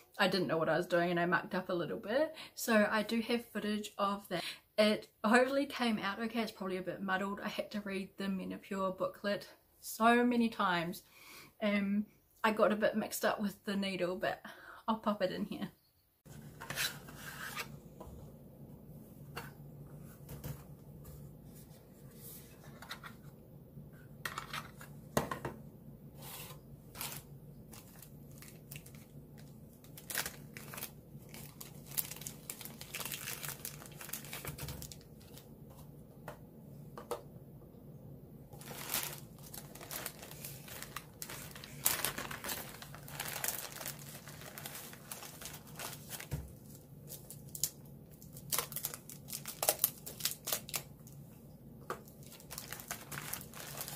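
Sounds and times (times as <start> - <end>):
wrappers crinkling and tearing: 26.9 - 35.5, 38.6 - 51.2, 52.0 - 53.9.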